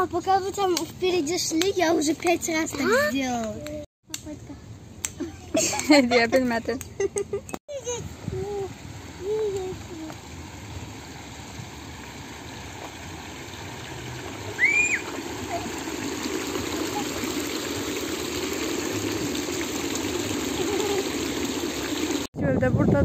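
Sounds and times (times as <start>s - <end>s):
running water rushing: 7.7s - 22.3s.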